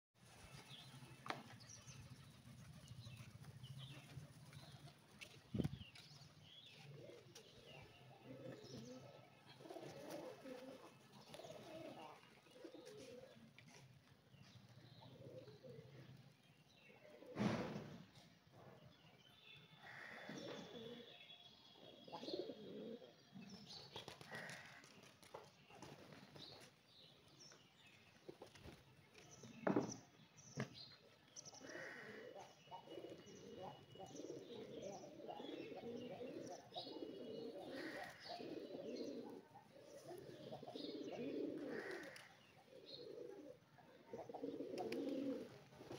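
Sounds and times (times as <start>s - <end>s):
small birds chirping: 0.2s - 45.9s
pigeons cooing: 6.7s - 13.9s, 15.0s - 16.2s, 19.8s - 21.0s, 21.9s - 23.2s, 31.5s - 45.9s
loud thump: 17.4s - 18.0s.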